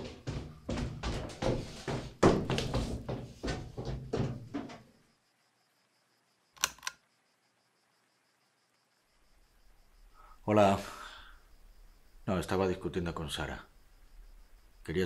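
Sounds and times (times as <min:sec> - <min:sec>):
knocks and thuds: 0:00.0 - 0:05.0
sharp clicks: 0:06.6 - 0:07.0.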